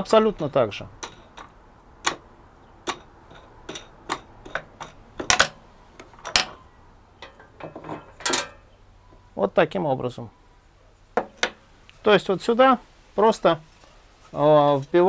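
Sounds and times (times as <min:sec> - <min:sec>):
metal and wood clicks and knocks: 0:01.0 - 0:06.6, 0:07.2 - 0:08.6.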